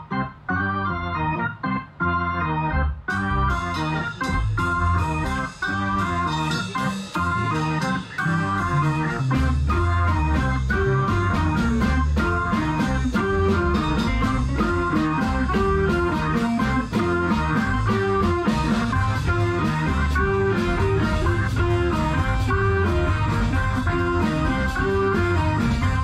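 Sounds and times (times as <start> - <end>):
bass notes: 0.0 - 26.0
electric guitar playing: 0.0 - 26.0
drum kit steady beat: 3.0 - 26.0.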